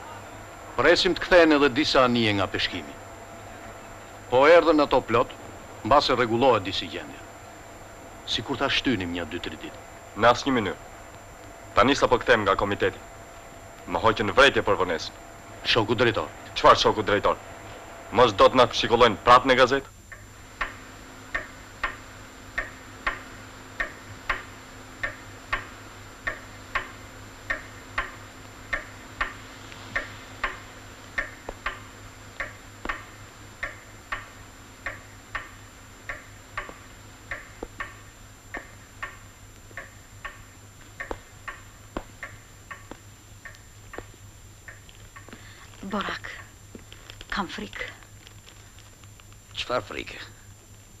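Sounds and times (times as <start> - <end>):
pendulum wall clock ticking: 18.2 - 45.4.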